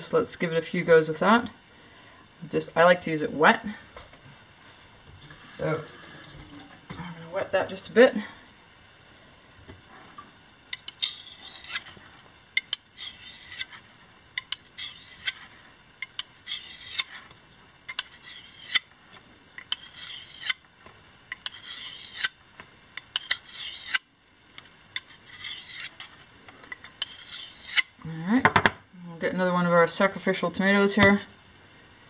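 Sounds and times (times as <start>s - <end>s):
knife rasping on whetstone: 10.8s - 12.0s, 12.6s - 17.3s, 17.9s - 18.9s, 19.6s - 20.6s, 21.3s - 22.4s, 23.1s - 24.0s, 25.0s - 26.2s, 26.8s - 27.9s.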